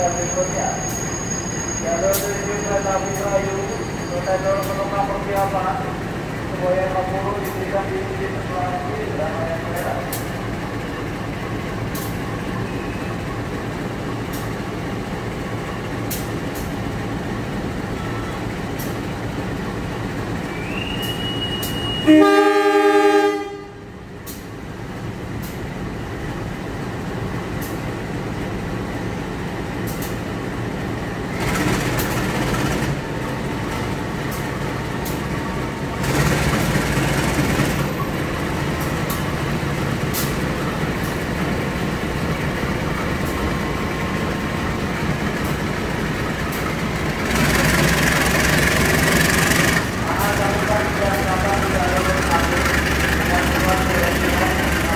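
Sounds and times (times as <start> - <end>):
short rising whistle: 20.5 - 22.2
locomotive horn blast: 21.0 - 23.9
diesel engine running: 24.0 - 54.9.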